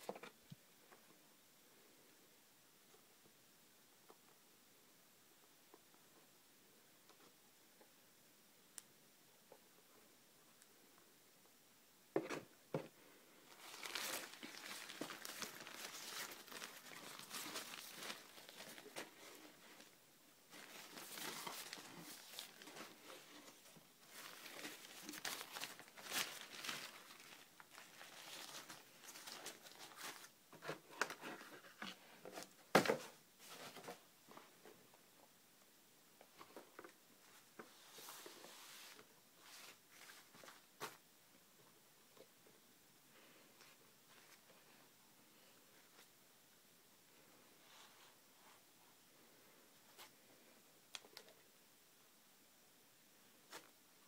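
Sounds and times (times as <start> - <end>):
tissue paper crinkling: 13.5 - 30.3.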